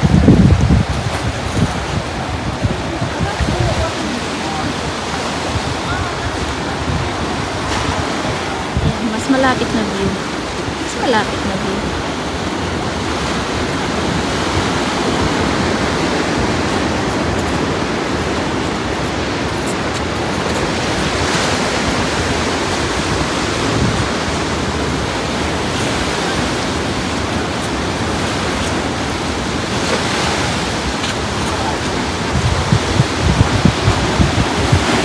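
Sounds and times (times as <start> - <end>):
ocean surf breaking: 0.0 - 35.0
wind on microphone: 0.0 - 35.0.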